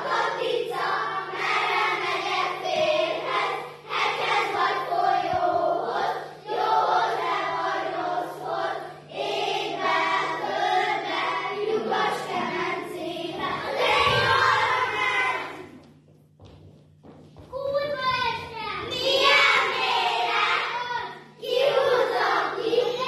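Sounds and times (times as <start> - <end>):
children singing a folk song: 0.0 - 15.8, 18.8 - 23.0.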